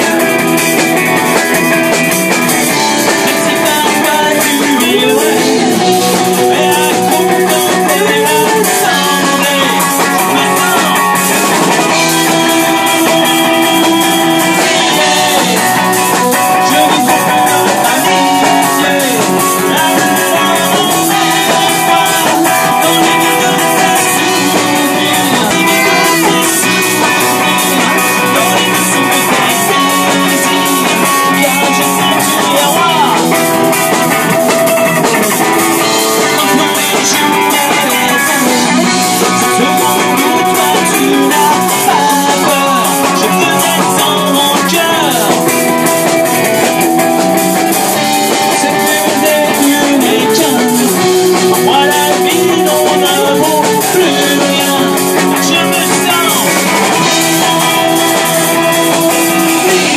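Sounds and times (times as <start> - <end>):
bass guitar: 0.0 - 59.9
drum kit: 0.0 - 59.9
electric guitar: 0.0 - 59.9
man singing: 0.0 - 59.9.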